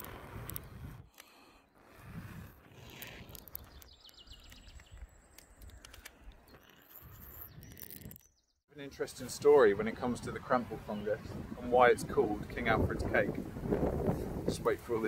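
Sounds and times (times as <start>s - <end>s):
wind rumbling on microphone: 0.0s - 1.1s, 1.9s - 8.1s, 9.2s - 15.0s
small bird chirping: 2.8s - 8.6s.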